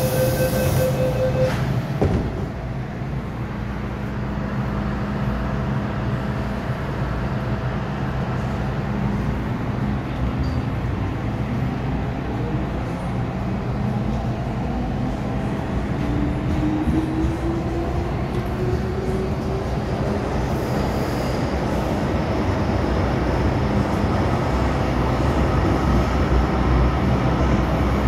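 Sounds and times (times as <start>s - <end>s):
train low hum: 0.0s - 28.0s
thump: 2.0s - 2.5s.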